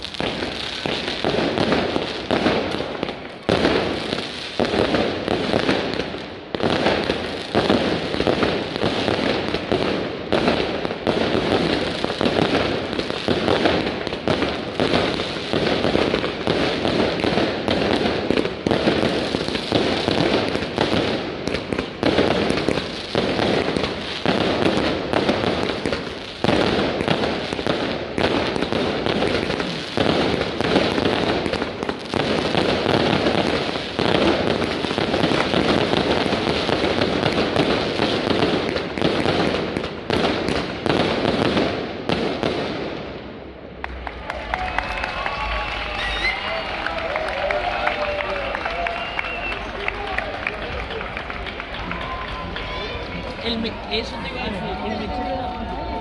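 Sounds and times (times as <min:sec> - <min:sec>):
rockets bursting overhead: 0:00.0 - 0:44.1
fireworks bangs and crackling: 0:00.0 - 0:56.0.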